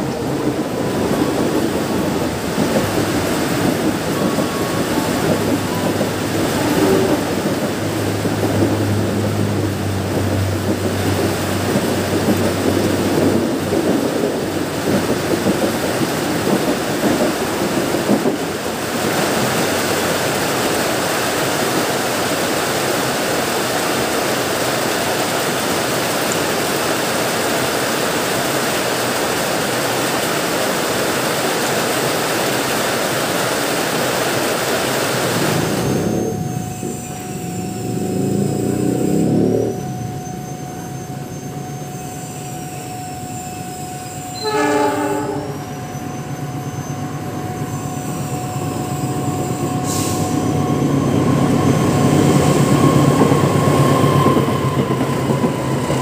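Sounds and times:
diesel locomotive hum: 0:00.0 - 0:56.0
train rumbling clatter: 0:00.0 - 0:56.0.

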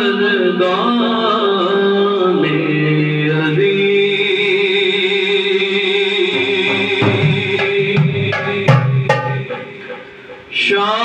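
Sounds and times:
frame drum strokes: 0:06.3 - 0:10.7.

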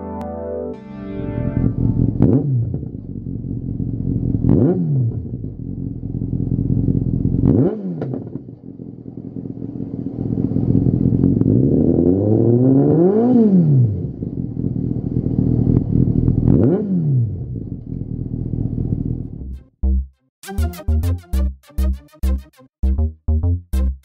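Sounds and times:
motorcycle engine idling and revving: 0:01.8 - 0:19.7.

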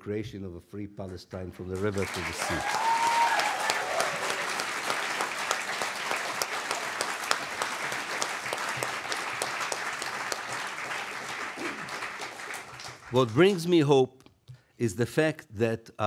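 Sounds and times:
audience applauding: 0:01.7 - 0:13.9.

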